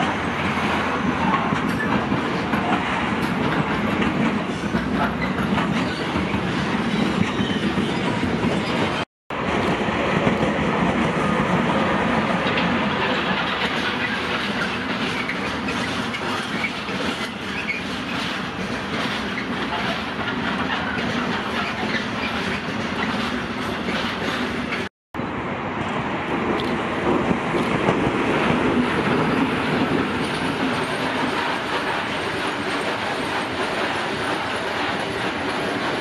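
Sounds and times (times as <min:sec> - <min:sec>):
wheels clattering over rail joints: 0:00.0 - 0:09.0, 0:12.2 - 0:24.9
freight train rolling past: 0:00.0 - 0:36.0.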